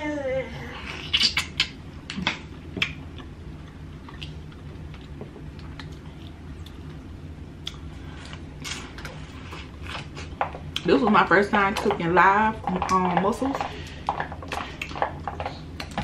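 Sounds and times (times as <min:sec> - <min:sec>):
steady low hum: 0:00.0 - 0:16.0
mouth smacks: 0:00.9 - 0:03.3.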